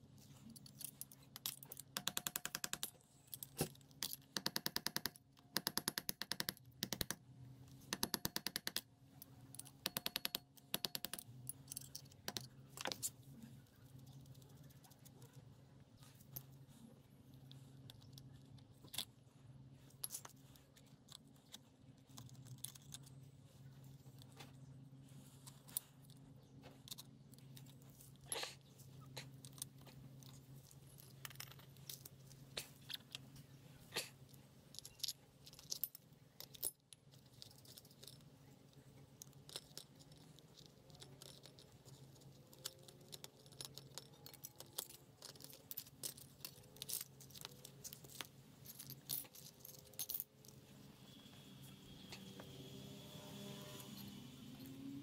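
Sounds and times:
metallic clicks and clinks: 0:07.9 - 0:13.1, 0:34.3 - 0:38.3, 0:39.2 - 0:50.6
steady low hum: 0:08.8 - 0:55.0.

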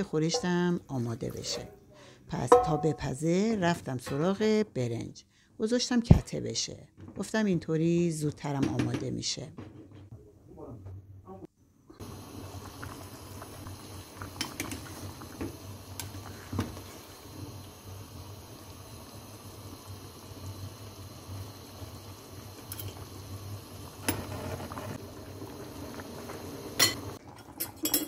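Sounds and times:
stew bubbling: 0:11.9 - 0:27.8.

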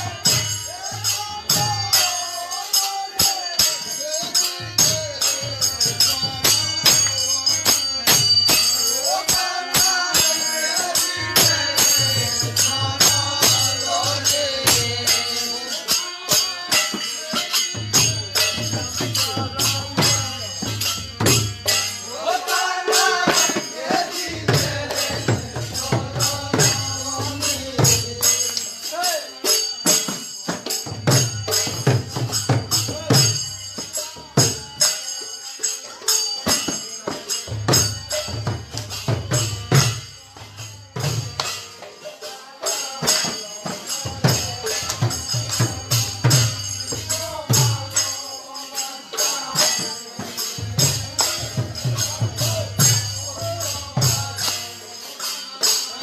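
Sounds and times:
group singing devotional chant: 0:00.0 - 0:56.0
hand cymbals clashing: 0:00.0 - 0:56.0.

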